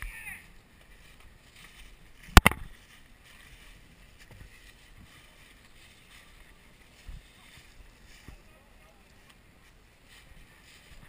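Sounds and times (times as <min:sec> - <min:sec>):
sharp cracks: 0:02.3 - 0:02.7.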